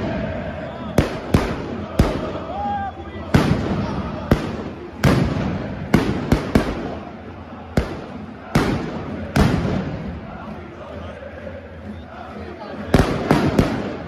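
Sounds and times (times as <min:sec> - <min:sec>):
steady background din: 0:00.0 - 0:14.0
firecracker bangs with echo: 0:01.0 - 0:02.4, 0:03.3 - 0:07.1, 0:07.7 - 0:10.1, 0:12.9 - 0:14.0.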